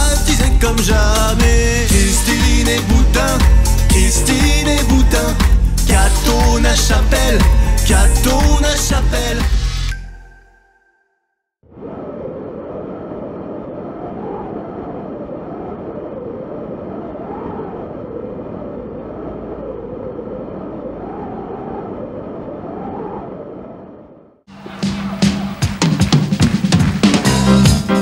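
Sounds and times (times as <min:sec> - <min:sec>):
strong wind rushing: 0:11.6 - 0:25.6.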